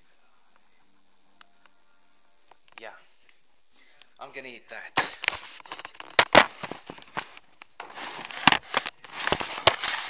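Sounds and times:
camera handling noise: 0:05.2 - 0:10.0.

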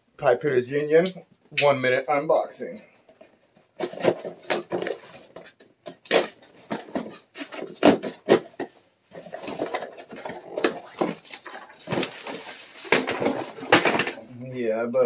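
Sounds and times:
cardboard and tape ripping: 0:03.8 - 0:05.3, 0:05.9 - 0:14.3.

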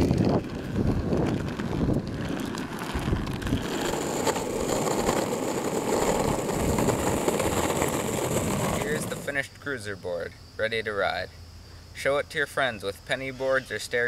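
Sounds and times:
skateboard wheels rolling on asphalt: 0:00.0 - 0:10.3.

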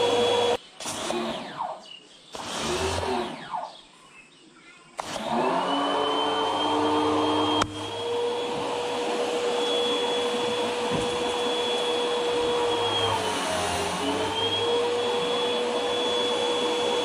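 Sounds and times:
pressure washer motor whine: 0:00.0 - 0:01.5, 0:05.0 - 0:17.0.

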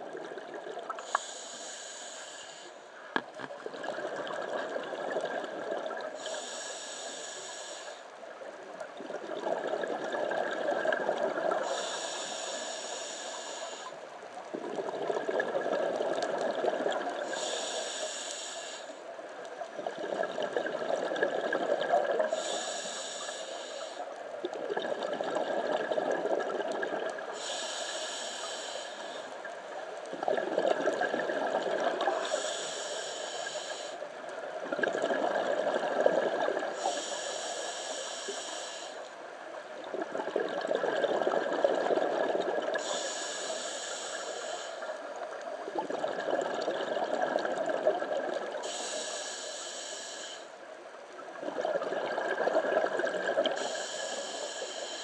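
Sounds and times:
hissing regulator inhale: 0:01.0 - 0:03.0, 0:06.0 - 0:08.2, 0:11.0 - 0:14.0, 0:17.0 - 0:19.1, 0:22.1 - 0:24.2, 0:27.2 - 0:29.5, 0:32.0 - 0:34.1, 0:36.6 - 0:39.2, 0:42.7 - 0:45.3, 0:48.6 - 0:50.6, 0:53.4 - 0:55.0
bubbling exhale underwater: 0:03.6 - 0:06.3, 0:09.0 - 0:12.0, 0:14.5 - 0:17.5, 0:19.7 - 0:22.5, 0:24.4 - 0:27.6, 0:30.1 - 0:32.4, 0:34.6 - 0:37.0, 0:39.8 - 0:43.4, 0:45.6 - 0:49.2, 0:51.3 - 0:54.5.

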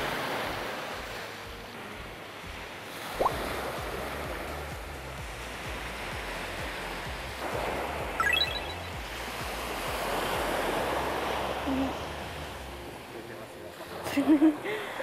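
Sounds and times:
small waves breaking on sand: 0:00.0 - 0:08.2, 0:08.8 - 0:15.0
high rising beeps: 0:08.2 - 0:09.0.

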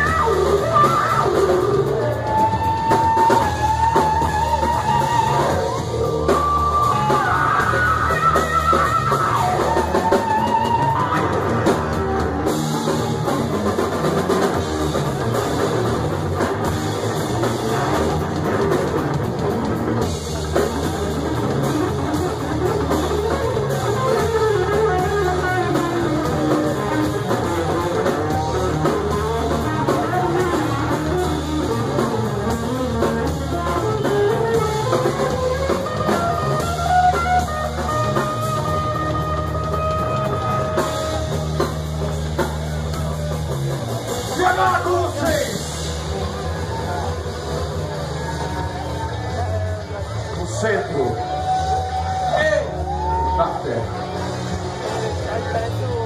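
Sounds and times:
electric lead guitar bending notes: 0:00.0 - 0:44.4
live rock band playing: 0:00.0 - 0:56.0.

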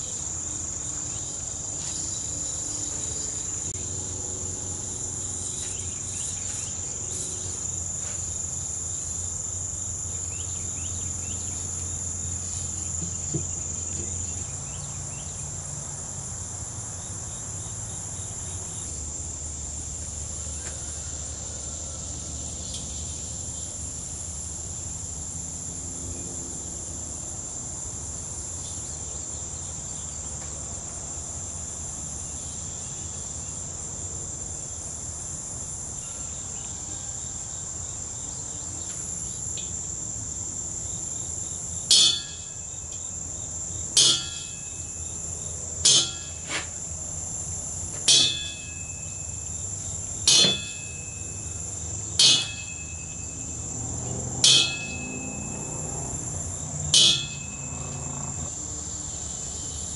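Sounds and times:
high-pitched insect chirring: 0:39.2 - 0:59.9
metallic strikes on steel drum: 0:41.9 - 0:42.6, 0:44.0 - 0:44.7, 0:45.8 - 0:46.4, 0:50.3 - 0:51.1, 0:52.2 - 0:53.1, 0:54.4 - 0:55.7, 0:57.0 - 0:57.9.

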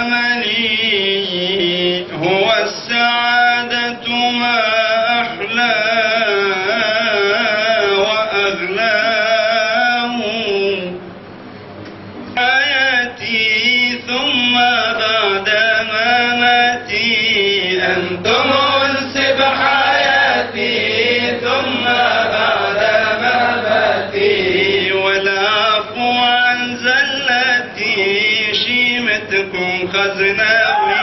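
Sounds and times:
man chanting: 0:00.0 - 0:11.0, 0:12.4 - 0:20.1, 0:24.6 - 0:31.0.

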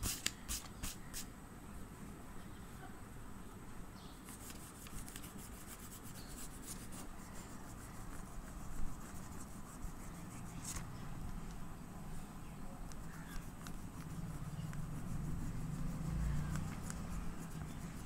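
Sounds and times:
pastel scratching on paper: 0:04.2 - 0:10.9, 0:12.9 - 0:18.0.

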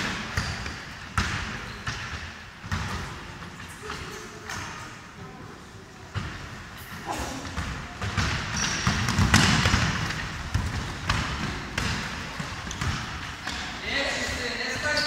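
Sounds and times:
basketball bouncing on wood floor: 0:00.0 - 0:03.2, 0:07.5 - 0:13.7.

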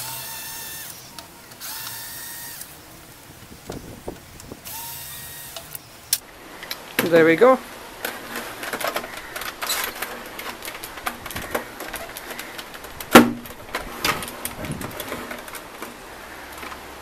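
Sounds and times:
sharp knock: 0:13.1 - 0:13.4.

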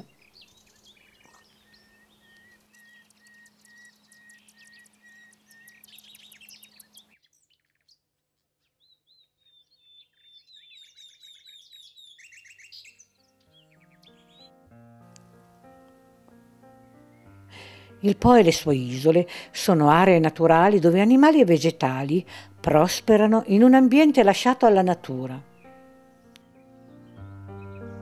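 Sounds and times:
nightingale singing: 0:00.0 - 0:14.7, 0:24.7 - 0:28.0.

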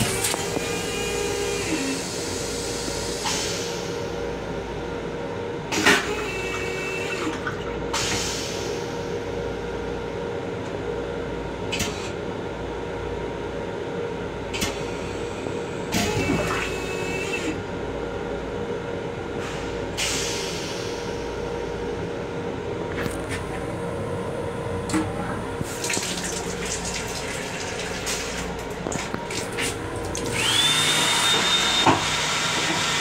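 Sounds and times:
vacuum toilet loud suck: 0:15.9 - 0:17.6, 0:24.9 - 0:33.0
steady hum: 0:20.6 - 0:32.0
rinse water running into bowl: 0:25.6 - 0:30.5.

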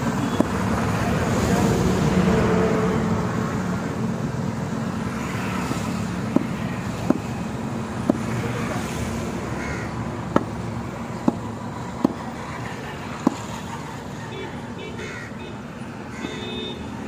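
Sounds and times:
cleaver chopping on wooden block: 0:06.3 - 0:07.3, 0:08.0 - 0:08.3, 0:10.3 - 0:10.6, 0:11.2 - 0:11.4, 0:12.0 - 0:12.2.

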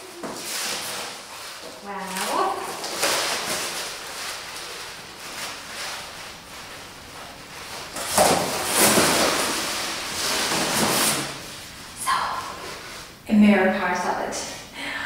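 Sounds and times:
cardboard and wrapping rustling: 0:00.0 - 0:13.1.

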